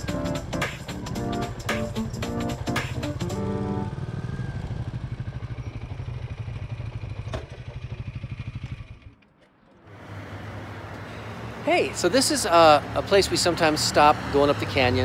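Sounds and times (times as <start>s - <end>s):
motorcycle engine idling: 0.0s - 9.2s.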